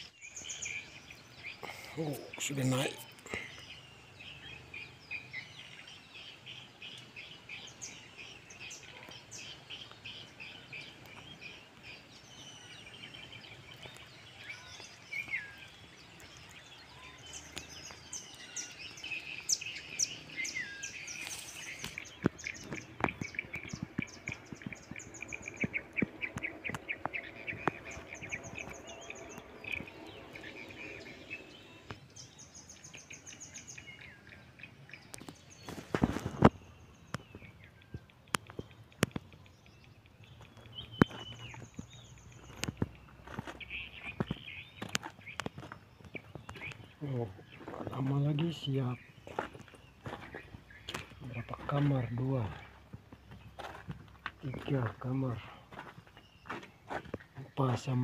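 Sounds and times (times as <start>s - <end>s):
birds chirping and calling: 0.0s - 58.0s
sharp clicks: 38.0s - 43.0s.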